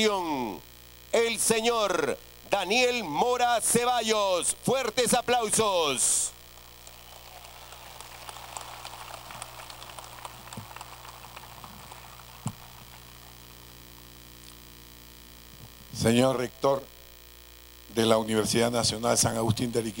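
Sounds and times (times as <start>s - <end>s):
steady electrical hum: 0.0s - 20.0s
faint crowd applause: 6.5s - 13.4s.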